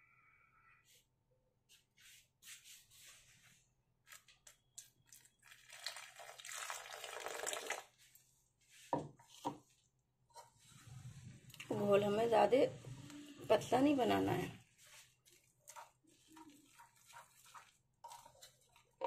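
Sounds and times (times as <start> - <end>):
water pouring into a bowl: 5.1 - 8.0
metal spoon scraping flour: 14.8 - 19.0.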